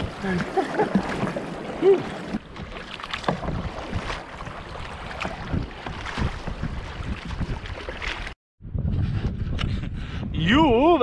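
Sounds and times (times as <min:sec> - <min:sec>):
kayak paddle splashing: 0:00.0 - 0:08.4
wind buffeting microphone: 0:03.4 - 0:11.0.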